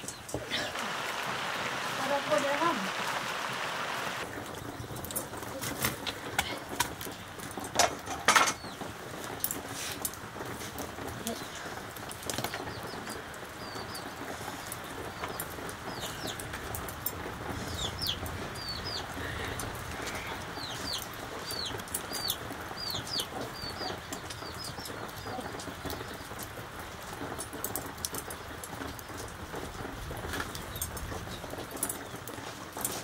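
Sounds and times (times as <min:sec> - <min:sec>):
background hiss: 0:00.0 - 0:04.8
small birds chirping: 0:00.0 - 0:07.6, 0:08.5 - 0:33.0.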